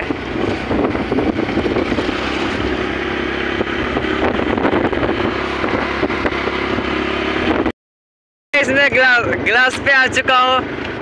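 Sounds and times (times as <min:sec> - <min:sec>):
wind on microphone: 0:00.0 - 0:07.7
vehicle engine and road noise: 0:00.0 - 0:07.8, 0:08.6 - 0:11.0.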